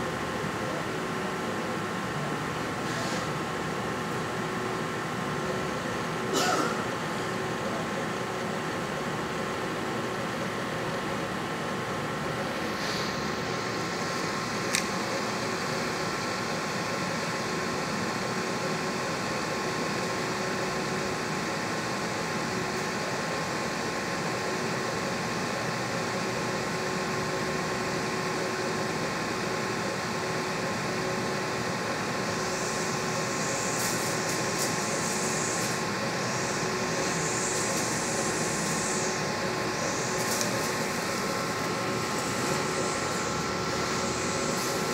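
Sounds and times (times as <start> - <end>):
machine mechanical hum: 0.0 - 44.9
high hiss: 32.8 - 44.9.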